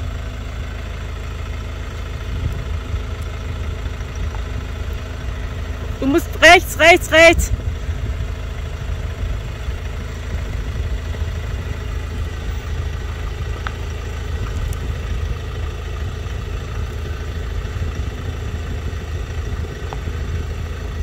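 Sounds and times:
truck engine at low revs: 0.0s - 21.0s.

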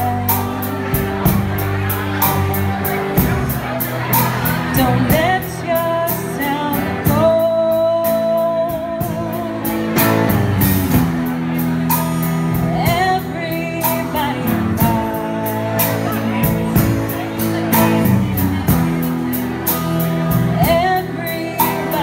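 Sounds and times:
person singing: 0.0s - 10.9s, 12.5s - 18.9s, 19.8s - 22.0s
guitar: 0.0s - 22.0s.

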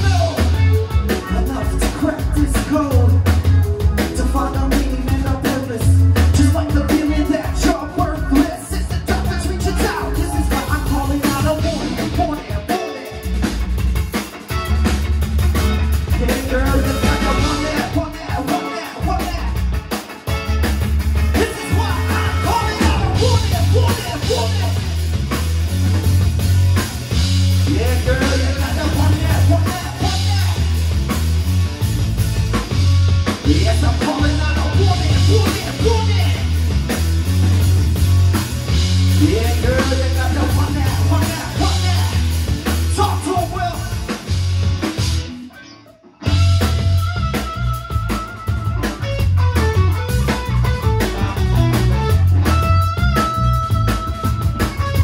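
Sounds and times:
person singing: 0.0s - 13.4s, 16.1s - 19.7s, 21.3s - 24.8s, 27.7s - 30.8s, 33.4s - 36.5s, 39.2s - 42.3s
drum kit: 0.0s - 45.6s, 46.2s - 55.0s
electric bass line: 0.0s - 45.6s, 46.2s - 55.0s.

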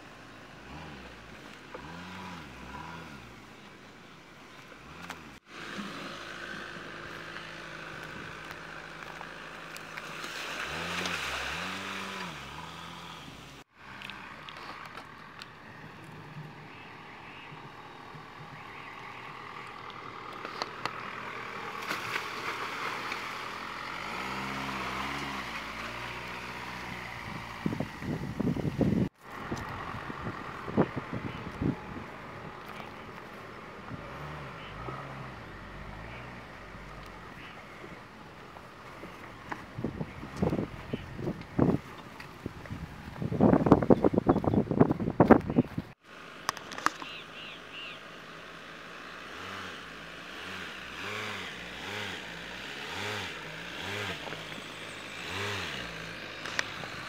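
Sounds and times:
engine revving: 0.0s - 3.7s, 4.6s - 41.8s, 46.3s - 57.0s
tyres on dirt: 0.0s - 57.0s.

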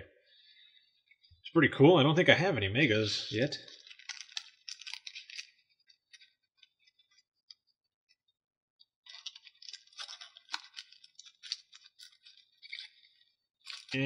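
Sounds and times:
trading cards crinkling and clicking: 3.2s - 7.7s, 8.8s - 14.0s.

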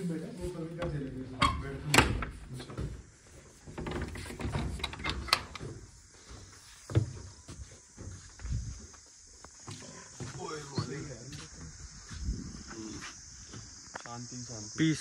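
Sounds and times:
door clicks and knocks: 0.8s - 3.0s, 3.6s - 5.8s
wooden door opening: 0.8s - 5.9s
footsteps on wooden boards: 5.5s - 13.8s.

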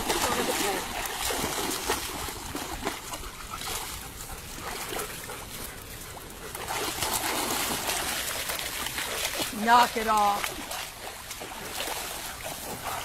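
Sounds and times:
dogs splashing in water: 0.0s - 13.0s.

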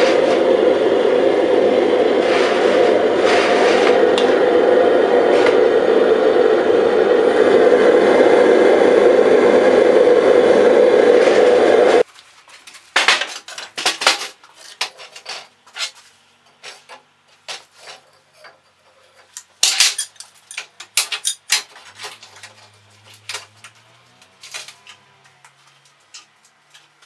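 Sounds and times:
metal tools clinking and clattering: 17.6s - 23.8s.

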